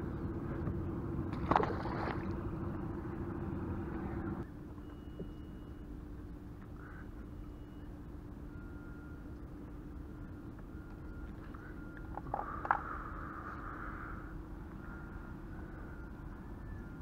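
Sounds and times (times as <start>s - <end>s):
water and air noise: 0.0s - 17.0s
water splash: 1.3s - 2.4s.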